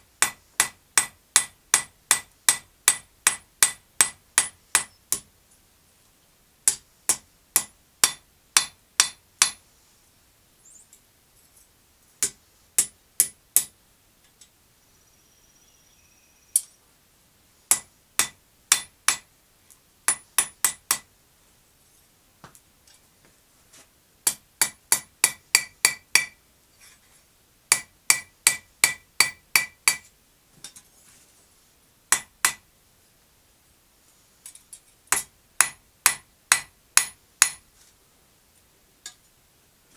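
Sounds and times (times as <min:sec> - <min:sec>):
hammer striking steel on anvil: 0:00.2 - 0:05.3, 0:06.7 - 0:09.6, 0:12.2 - 0:13.7, 0:17.7 - 0:19.2, 0:20.1 - 0:21.1, 0:24.3 - 0:26.4, 0:27.7 - 0:30.0, 0:32.1 - 0:32.6, 0:35.1 - 0:37.6.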